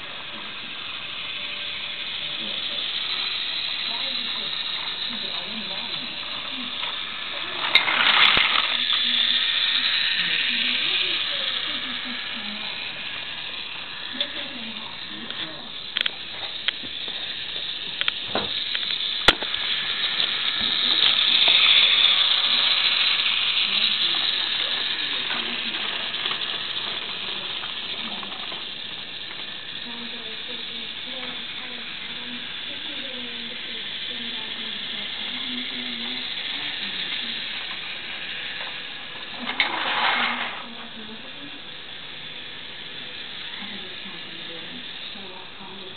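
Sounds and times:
toy train motor whirring: 0.0 - 45.9.

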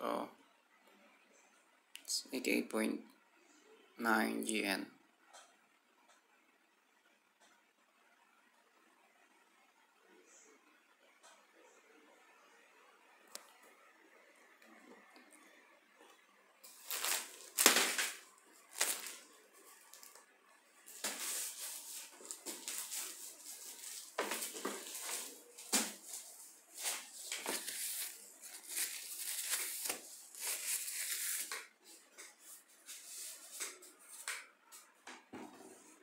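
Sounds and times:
gloves rustling against bottle: 16.6 - 20.2, 20.9 - 33.9.

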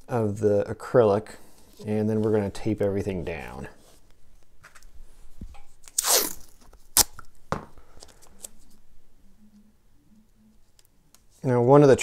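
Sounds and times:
tape snapping: 5.5 - 8.5
tape crinkling: 5.5 - 8.8
tape tearing off roll: 5.8 - 7.2.

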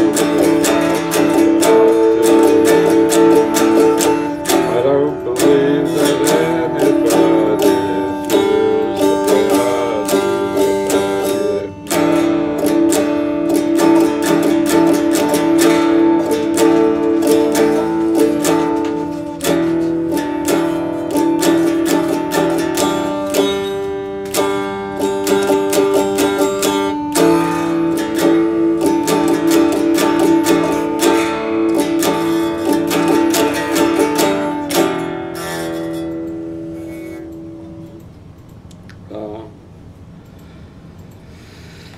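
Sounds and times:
electric guitar strumming: 0.0 - 39.2.

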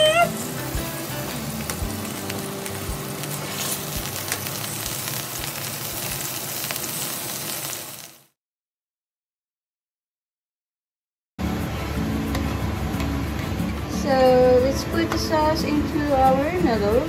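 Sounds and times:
steaks sizzling on a grill pan: 0.0 - 8.3.

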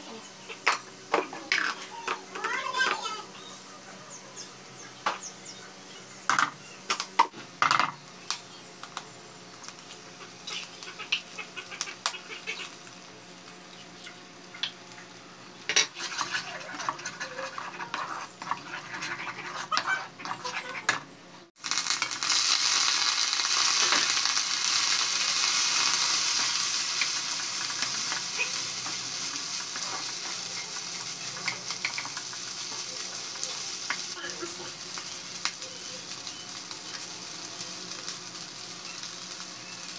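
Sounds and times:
loud sizzle of frying: 0.0 - 20.7, 21.4 - 39.9
spatula scraping and knocking pan: 15.7 - 21.0.

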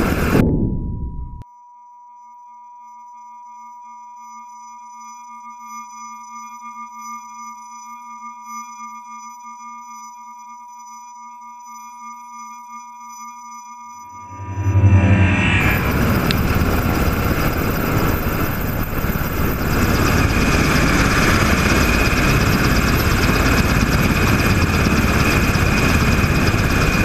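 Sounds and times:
steady electronic tones: 14.2 - 20.5
helicopter rotor noise: 15.3 - 27.0.

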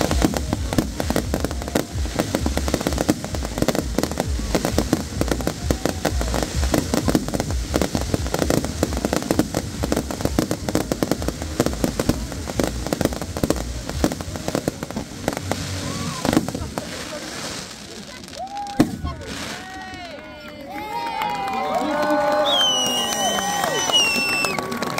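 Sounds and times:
fireworks bangs and crackles: 0.0 - 20.2.

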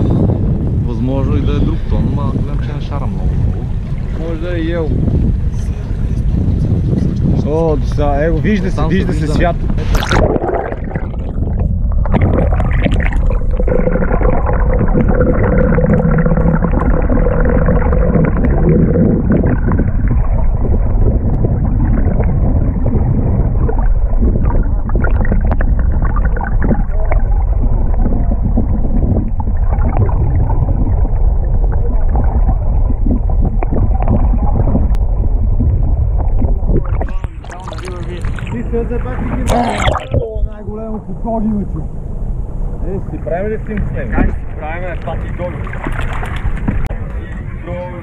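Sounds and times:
low rumbling underwater noise: 0.0 - 48.0
faint steady hum: 9.0 - 45.8.

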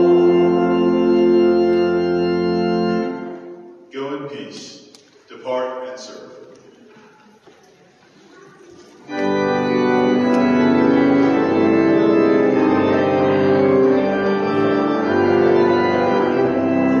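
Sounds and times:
pipe organ chords: 0.0 - 4.3, 9.0 - 17.0.

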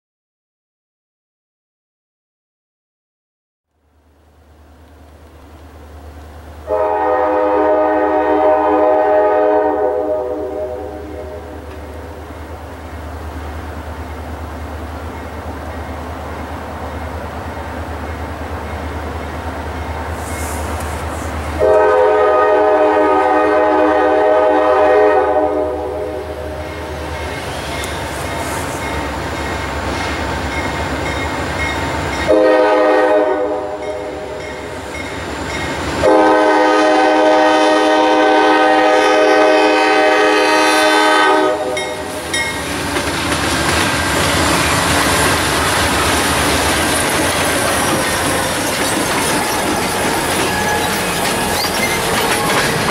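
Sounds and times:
locomotive horn blasts: 6.6 - 12.1, 21.6 - 27.3, 32.2 - 34.6, 36.0 - 42.2
crossing signal bell ringing: 30.5 - 32.4, 33.8 - 35.8, 41.8 - 42.7, 49.3 - 52.9
locomotive engine noise: 41.0 - 52.9
train wheel clatter: 41.7 - 52.9.

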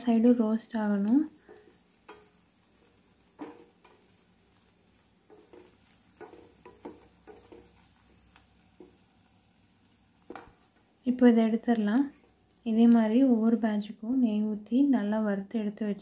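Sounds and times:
faint sizzle: 0.0 - 16.0
spatula knocking and scraping pan: 0.2 - 9.1, 10.2 - 10.9.

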